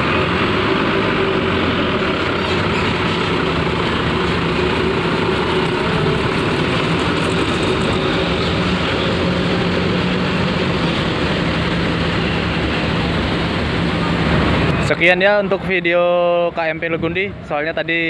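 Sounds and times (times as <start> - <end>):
diesel bus engine running: 0.0 - 18.0.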